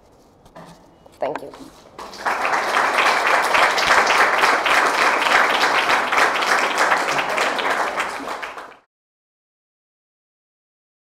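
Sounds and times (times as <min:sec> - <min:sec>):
audience applauding: 0:02.0 - 0:08.9.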